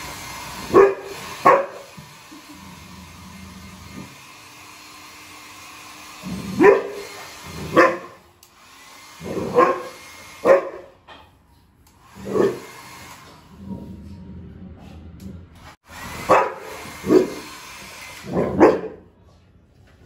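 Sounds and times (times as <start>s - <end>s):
hair dryer blowing: 0.0s - 10.8s, 11.8s - 13.6s, 15.6s - 18.8s
dog barking: 0.7s - 1.9s, 6.6s - 8.2s, 9.4s - 11.0s, 16.3s - 17.4s, 18.3s - 19.1s.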